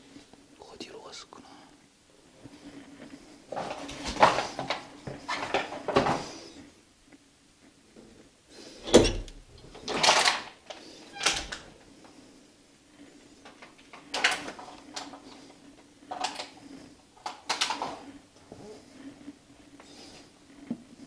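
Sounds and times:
door clicks and knocks: 8.9 - 10.4.

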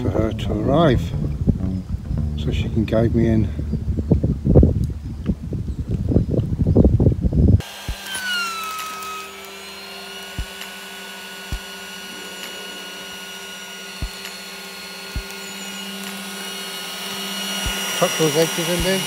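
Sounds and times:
soft low knocks: 0.3 - 7.2
electric air pump whining: 7.3 - 19.0.

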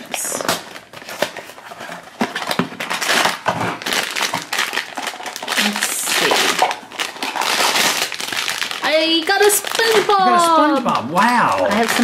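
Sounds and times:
foil bag crinkling: 0.0 - 12.0.

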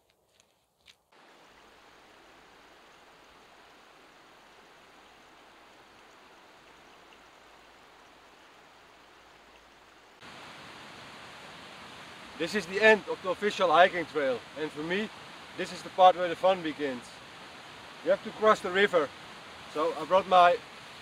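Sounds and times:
footsteps on grass: 0.0 - 1.2
river rushing over stones: 1.2 - 21.0.

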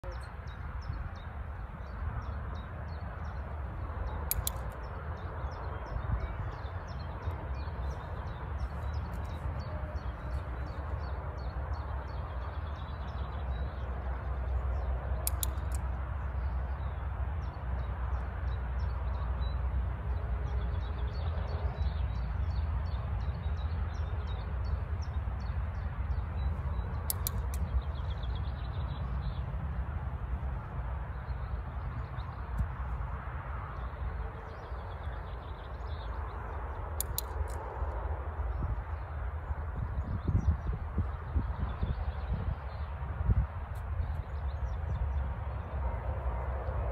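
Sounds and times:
wind buffeting microphone: 0.0 - 20.6, 21.5 - 46.9
small birds chirping: 0.0 - 46.9
sharp clicks: 4.0 - 5.2, 15.2 - 16.0, 26.7 - 28.9, 36.7 - 38.0.

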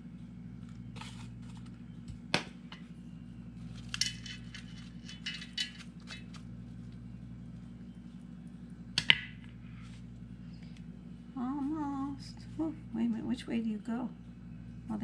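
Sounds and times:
steady low hum: 0.0 - 15.0
metal spoon scooping soil from can: 0.9 - 1.6.

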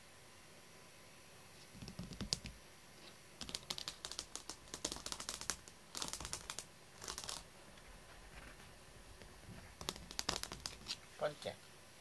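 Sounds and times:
rapid light tapping and clicking: 1.8 - 2.6, 3.4 - 7.4, 9.8 - 11.0.

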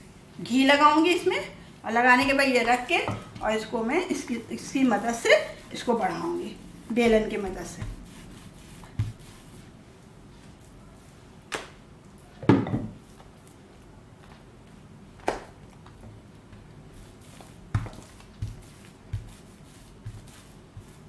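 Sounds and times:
hands patting dough: 2.0 - 9.8, 14.2 - 21.0
rolling pin on dough: 2.0 - 9.8, 16.9 - 21.0.

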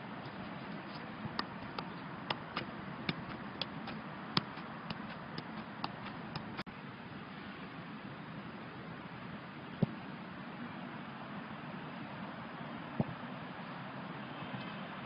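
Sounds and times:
football tapped by foot: 0.2 - 6.6.

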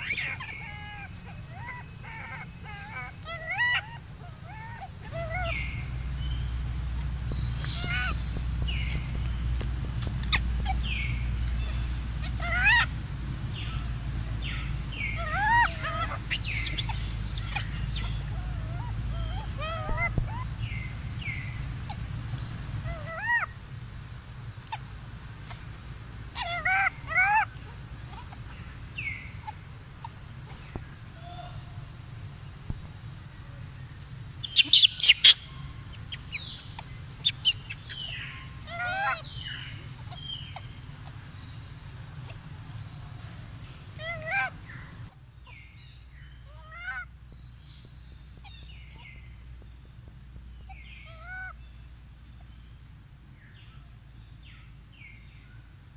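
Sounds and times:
baby monkey squealing: 0.0 - 6.0, 7.6 - 9.2, 10.0 - 12.9, 14.5 - 22.1, 22.8 - 23.6, 26.3 - 30.2, 34.4 - 41.2, 44.0 - 45.6, 46.5 - 47.1, 50.7 - 51.6.

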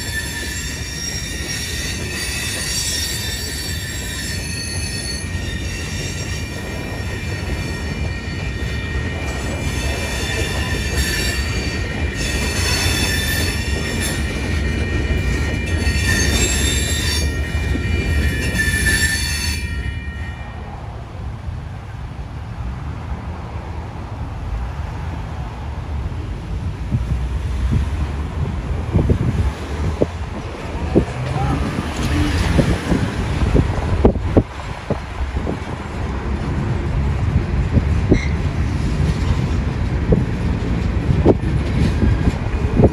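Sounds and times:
train wheels squealing on rails: 0.0 - 20.9, 28.9 - 35.6, 37.7 - 42.9
low train rumble: 0.0 - 42.9.

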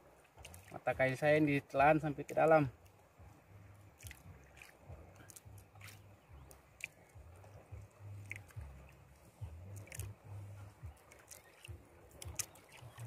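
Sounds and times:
soft wet squelches: 0.0 - 13.0
low rumble: 3.1 - 13.0.

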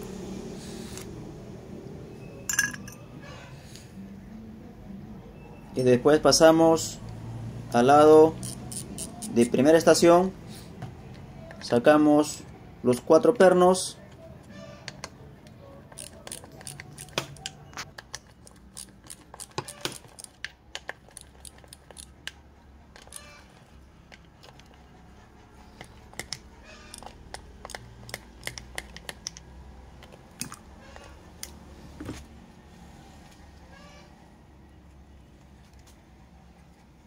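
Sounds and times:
metal parts clinking: 2.5 - 3.1, 15.9 - 22.2
socket ratchet clicking: 8.4 - 9.5, 15.9 - 22.4, 23.0 - 23.3, 26.1 - 30.2.

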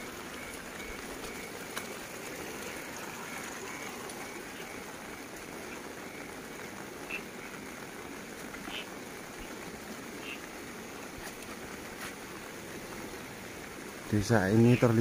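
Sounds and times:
light rain falling: 0.0 - 15.0.

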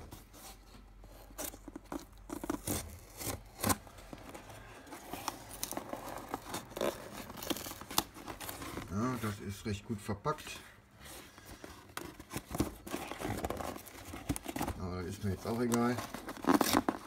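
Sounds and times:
cardboard scraping and crackling: 0.0 - 9.6, 10.4 - 17.0
knife slitting packing tape: 1.4 - 3.8, 16.1 - 17.0.

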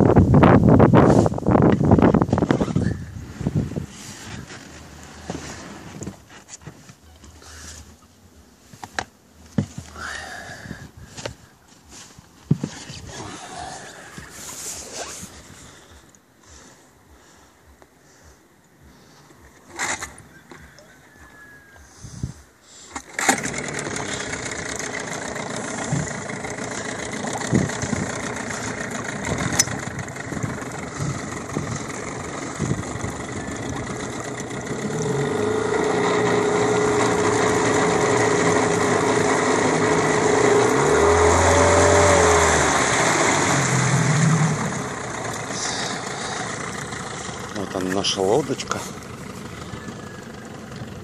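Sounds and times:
outboard motor running: 1.2 - 11.4, 12.5 - 17.8, 22.9 - 51.0
engine knocks: 23.0 - 51.0.

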